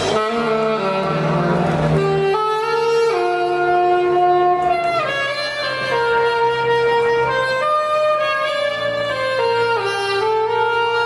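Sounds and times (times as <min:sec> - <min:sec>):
saxophone slow melody: 0:00.0 - 0:11.0.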